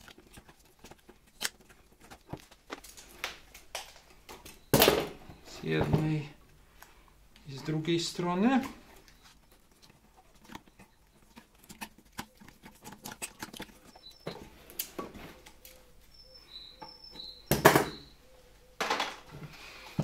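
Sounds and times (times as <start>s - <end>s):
tape crinkling and clicking: 0.0s - 4.6s, 8.5s - 15.9s.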